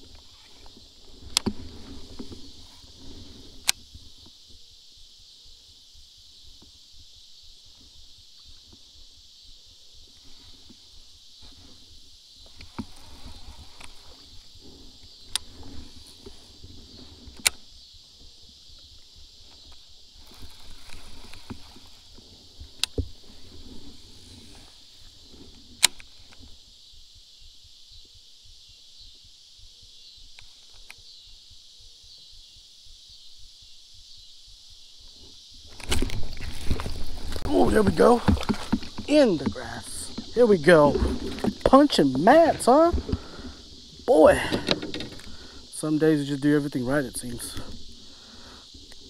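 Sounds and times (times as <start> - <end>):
high-pitched insect chorus: 0.0 - 49.0
splashing and rustling: 19.4 - 26.5, 35.6 - 45.5.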